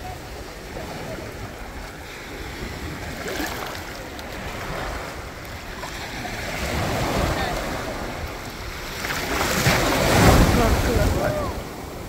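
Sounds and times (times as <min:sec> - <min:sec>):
surf washing over stony beach: 0:00.0 - 0:12.0
wind buffeting microphone: 0:00.0 - 0:12.0.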